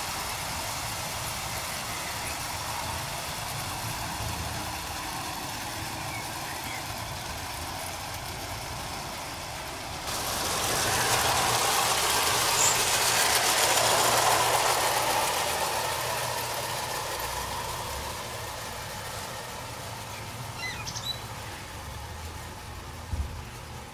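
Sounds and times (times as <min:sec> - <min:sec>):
toy train rattling and whirring: 0:00.0 - 0:23.9.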